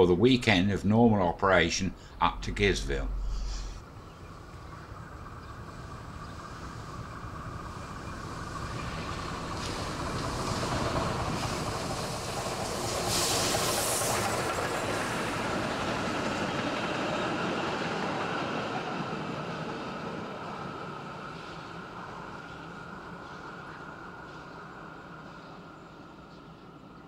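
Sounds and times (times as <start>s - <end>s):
steam locomotive approaching: 0.0s - 27.0s
train coaches rolling by: 0.0s - 27.0s
loud steam hiss: 1.9s - 3.8s, 7.7s - 15.4s.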